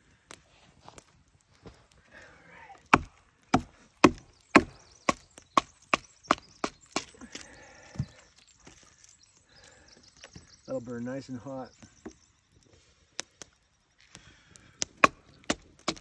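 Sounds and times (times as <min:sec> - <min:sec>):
wood splitting: 0:02.6 - 0:09.8, 0:14.2 - 0:16.0.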